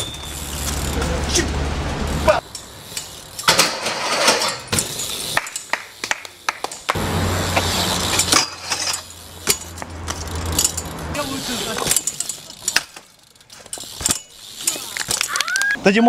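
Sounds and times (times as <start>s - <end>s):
bike scraping on metal rail: 0.0s - 15.3s
bike landing knocks and clanks: 2.5s - 10.9s, 11.7s - 15.3s.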